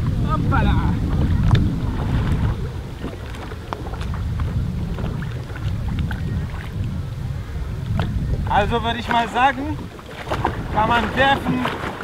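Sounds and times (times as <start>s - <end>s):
water lapping: 0.0s - 12.0s
wind blowing across microphone: 0.0s - 12.0s.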